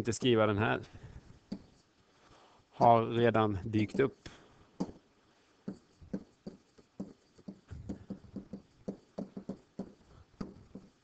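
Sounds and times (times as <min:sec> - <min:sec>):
stylus tapping on writing surface: 0:01.5 - 0:01.8, 0:04.8 - 0:05.0, 0:05.6 - 0:11.0.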